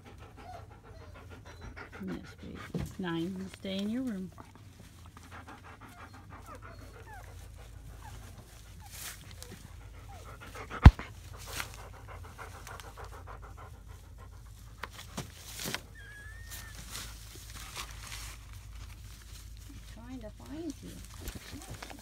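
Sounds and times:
dog panting rapidly: 0.0 - 17.4
puppies squeaking: 0.4 - 4.1, 5.0 - 10.3, 15.8 - 17.1.

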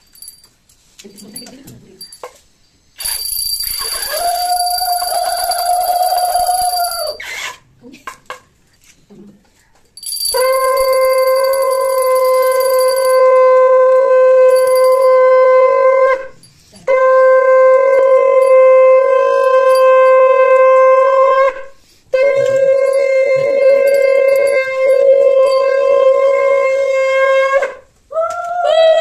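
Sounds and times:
thin high ringing: 0.0 - 7.2, 10.0 - 13.4, 14.5 - 15.4, 22.8 - 26.1.

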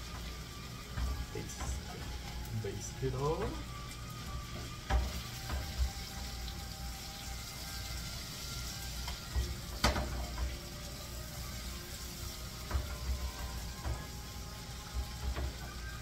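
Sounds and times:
butter sizzling in a frying pan: 0.0 - 16.0
spoon knocking against a pan: 9.1 - 10.6.

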